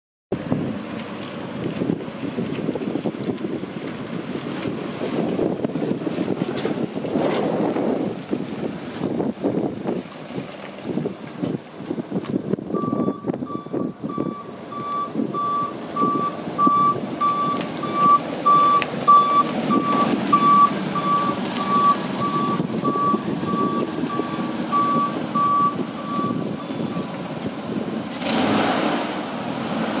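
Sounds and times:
steady rumbling noise: 0:00.3 - 0:28.2
vehicle back-up alarm beeping: 0:12.7 - 0:28.0.

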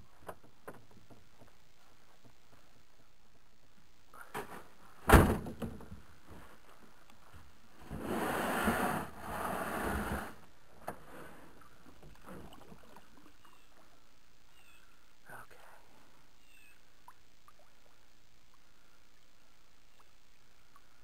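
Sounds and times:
kayak hull scraping over gravel: 0:07.8 - 0:11.6.

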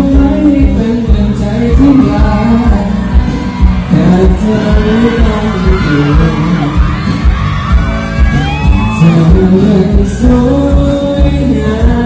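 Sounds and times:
man singing into microphone: 0:00.0 - 0:07.2, 0:08.3 - 0:12.0
live band playing pop: 0:00.0 - 0:12.0
audience cheering: 0:01.5 - 0:10.7.

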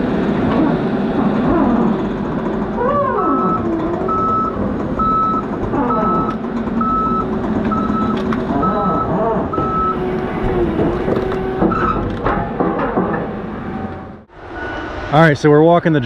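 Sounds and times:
diesel engine running under load: 0:00.0 - 0:14.3
backup alarm beeping: 0:03.3 - 0:10.6.

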